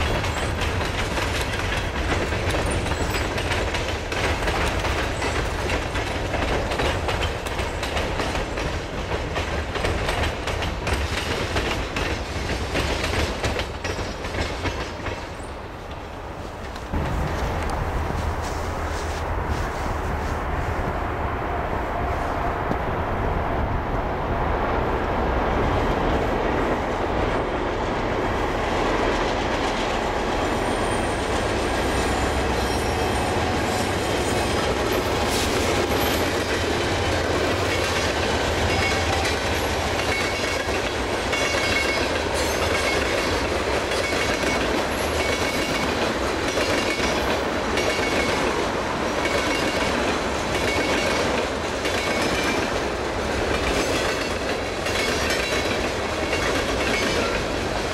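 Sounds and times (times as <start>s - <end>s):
train wheels clickety-clack: 0.0s - 20.9s, 25.6s - 57.9s
diesel locomotive engine rumble: 0.0s - 57.9s
high wheel squeal: 30.5s - 34.6s.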